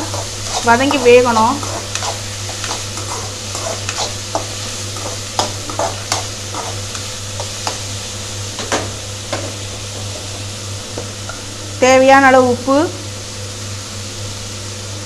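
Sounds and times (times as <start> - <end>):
spoon scraping and knocking pan: 0.0 - 7.9
vegetables sizzling in hot oil: 0.0 - 15.0.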